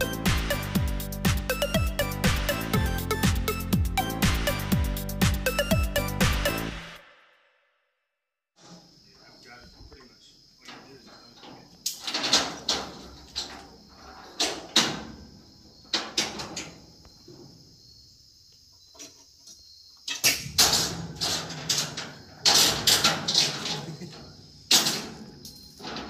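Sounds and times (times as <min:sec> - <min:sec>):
crickets chirping: 0:08.6 - 0:26.0
metallic clanking and rattling: 0:10.7 - 0:15.3, 0:20.1 - 0:26.0.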